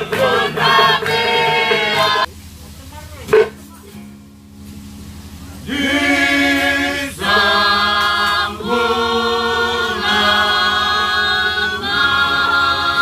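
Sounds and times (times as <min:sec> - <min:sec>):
group singing in close harmony: 0:00.0 - 0:02.3, 0:05.6 - 0:13.0.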